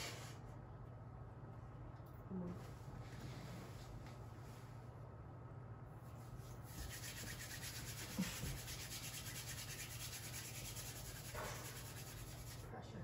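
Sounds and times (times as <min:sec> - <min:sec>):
steady low hum: 0:00.0 - 0:13.0
faint rubbing noise: 0:06.0 - 0:12.7.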